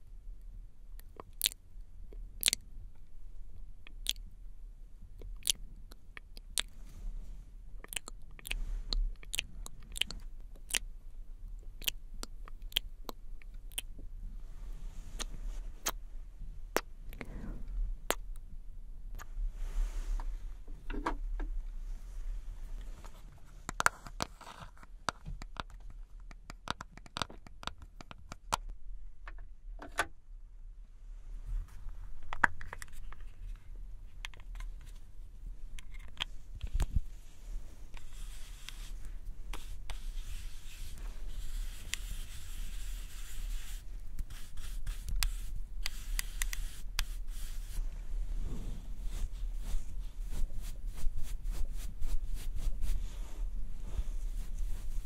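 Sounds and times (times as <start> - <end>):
constant low hum: 0.0 - 26.6, 27.2 - 55.0
makeup brush scratching powder: 37.9 - 47.9, 49.0 - 55.0.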